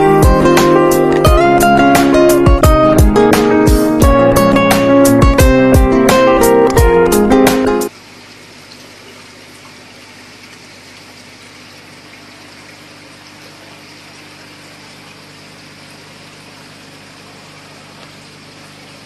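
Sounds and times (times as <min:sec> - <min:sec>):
aquarium air bubbling: 0:07.3 - 0:19.0
water churning: 0:07.9 - 0:19.0.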